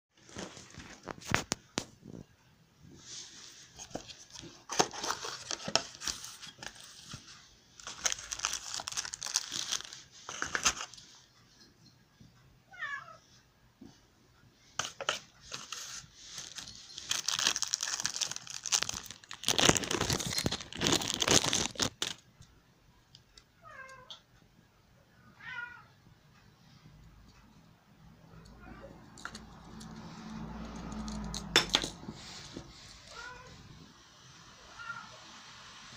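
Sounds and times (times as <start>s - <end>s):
plastic bag crinkling: 7.8s - 11.0s, 14.8s - 22.3s.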